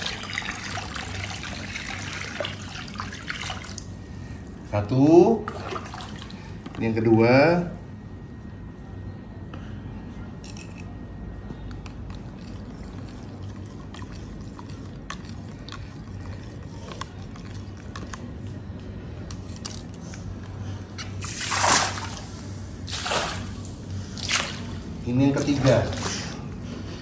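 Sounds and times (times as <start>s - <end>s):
low steady hum: 0.0s - 27.0s
water splashing onto pond: 21.2s - 24.8s.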